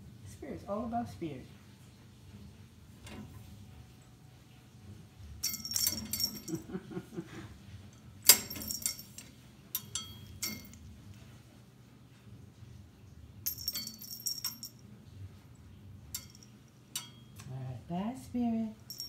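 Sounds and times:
small jingle bell jingling: 5.4s - 6.9s, 8.0s - 10.9s, 13.4s - 14.9s, 16.1s - 17.4s, 18.8s - 19.0s.

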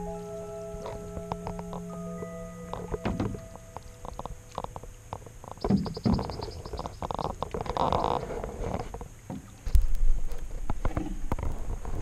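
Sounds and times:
paddle knocking on hull: 3.0s - 3.4s, 5.6s - 6.4s
paddle strokes swishing in water: 5.6s - 12.0s.

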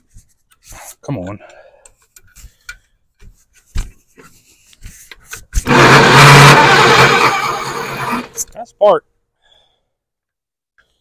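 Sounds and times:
starter motor cranking engine: 5.6s - 8.5s.

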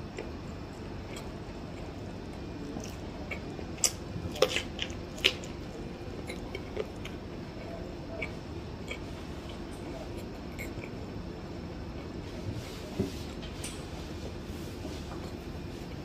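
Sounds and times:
wet chewing clicks: 0.0s - 11.0s.

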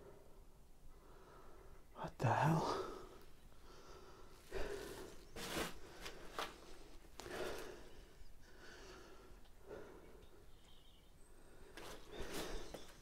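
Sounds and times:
person breathing hard: 2.5s - 10.5s, 11.2s - 13.0s.

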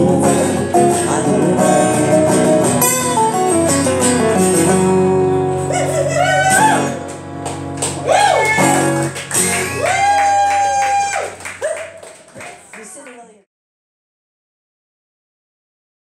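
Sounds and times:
acoustic guitars strumming chords: 0.0s - 12.4s.

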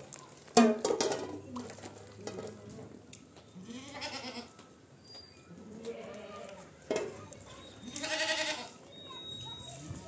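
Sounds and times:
goats bleating: 7.9s - 8.8s.

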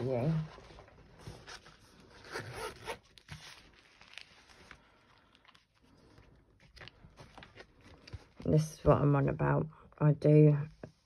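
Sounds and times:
paper pages rustling: 0.0s - 8.6s.

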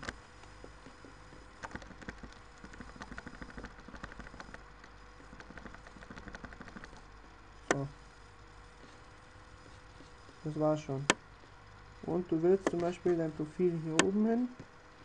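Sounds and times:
low steady hum: 0.0s - 15.0s
mouse scroll wheel clicking: 1.0s - 7.1s.

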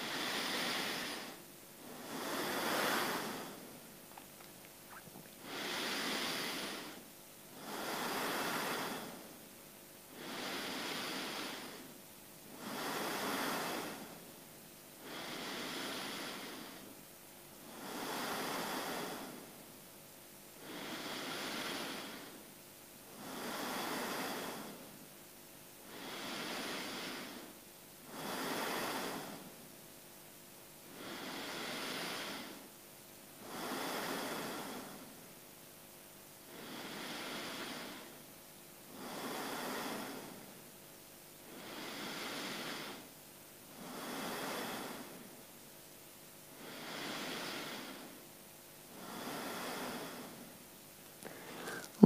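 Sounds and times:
person breathing deeply: 0.0s - 4.3s, 4.9s - 7.0s, 7.6s - 9.3s, 10.1s - 11.9s, 12.6s - 14.2s, 15.0s - 16.9s, 17.7s - 19.5s, 20.6s - 22.4s, 23.1s - 24.9s, 25.9s - 29.6s, 30.9s - 32.6s, 33.4s - 35.2s, 36.5s - 38.2s, 38.9s - 40.5s, 41.5s - 43.1s, 43.7s - 45.3s, 46.6s - 48.2s, 48.9s - 50.5s, 51.2s - 52.0s.

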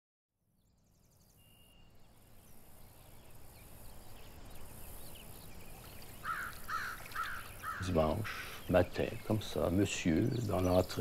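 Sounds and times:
small birds chirping: 0.5s - 11.0s.

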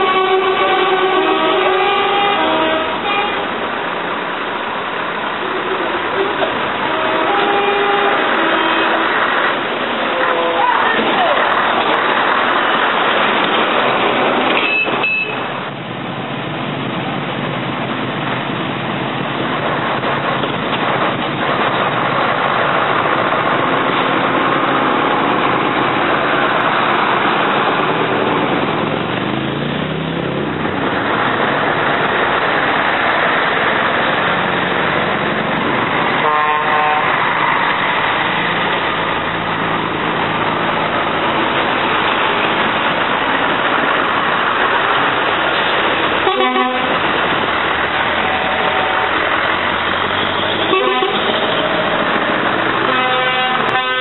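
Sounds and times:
truck horn blast: 0.0s - 3.6s, 6.8s - 9.3s, 36.0s - 37.2s, 46.2s - 47.1s, 48.2s - 49.3s, 50.2s - 51.8s, 52.8s - 54.0s
truck diesel engines running: 0.0s - 54.0s.

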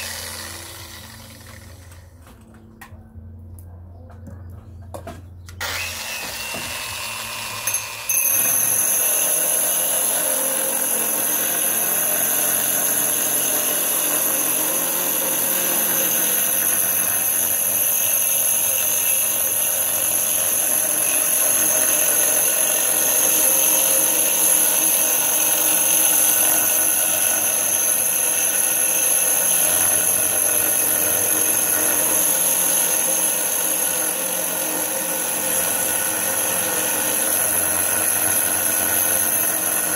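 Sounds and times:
angle grinder drilling stone: 0.0s - 2.1s, 5.6s - 39.9s.

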